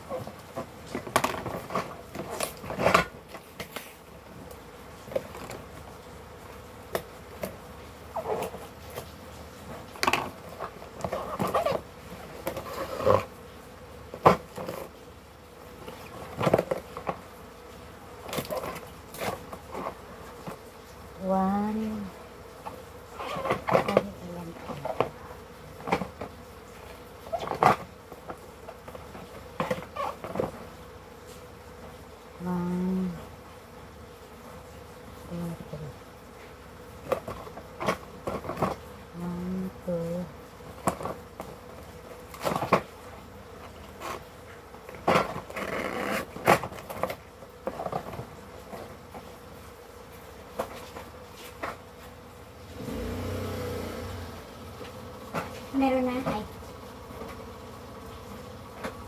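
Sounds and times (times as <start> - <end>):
packaging rustles and scrapes: 0.0 - 4.1, 7.4 - 13.3, 18.2 - 20.6, 43.7 - 49.4.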